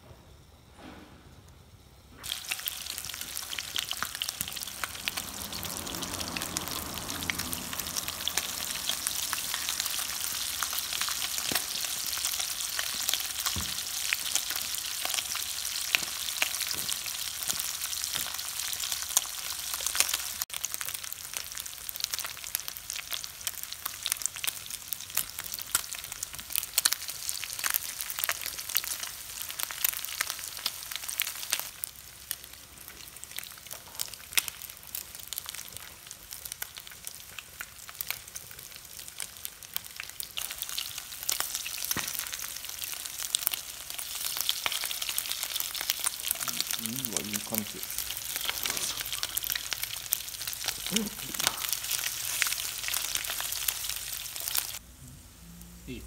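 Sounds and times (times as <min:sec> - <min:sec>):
chicken skin sizzling in fat: 0:02.2 - 0:54.8
spitting pops: 0:48.5 - 0:49.6.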